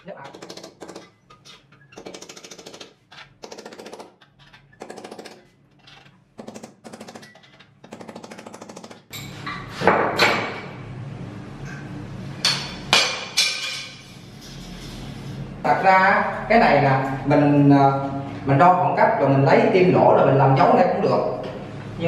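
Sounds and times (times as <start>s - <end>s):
sharp knocks: 0.0s - 5.4s
rapid mechanical hammering: 0.0s - 10.6s.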